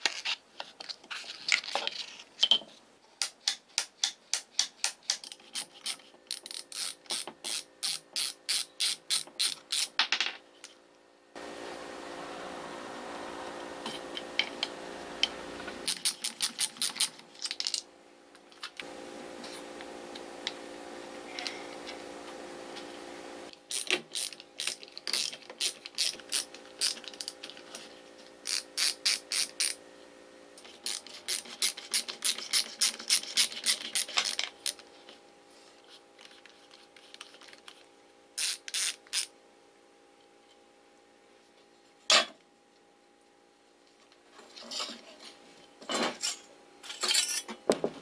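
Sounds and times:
ratchet driver clicking: 4.0s - 9.9s, 15.9s - 17.1s, 28.5s - 29.8s, 38.4s - 39.3s.

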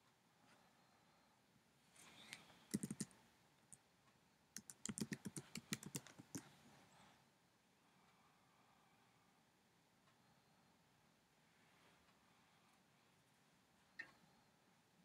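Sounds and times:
keyboard keystrokes: 2.7s - 3.1s, 4.6s - 6.4s.

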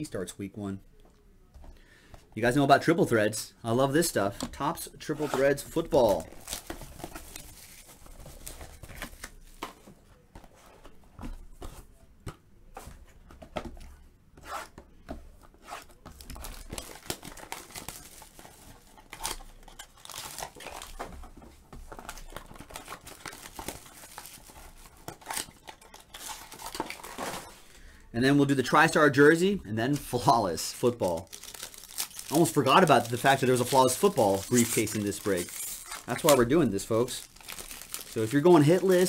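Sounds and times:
foil pack crinkling: 16.0s - 21.0s, 29.9s - 39.0s
plastic wrap tearing: 16.0s - 21.0s, 31.0s - 39.0s.

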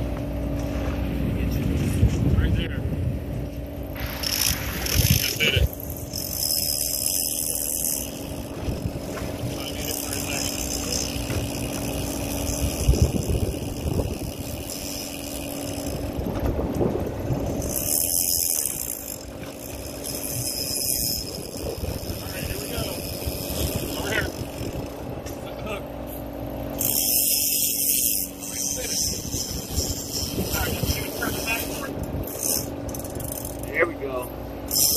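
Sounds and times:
boat engine running: 0.0s - 34.9s.

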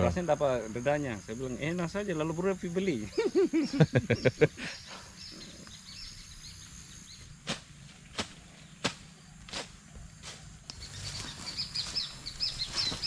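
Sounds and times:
insect drone: 0.0s - 13.0s
faint bird chirps: 2.9s - 7.4s, 10.7s - 13.0s.

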